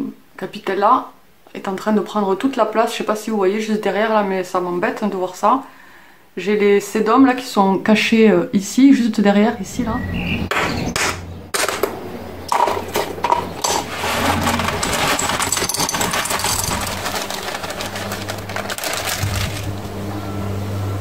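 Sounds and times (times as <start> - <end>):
steady low hum: 11.2 - 21.0.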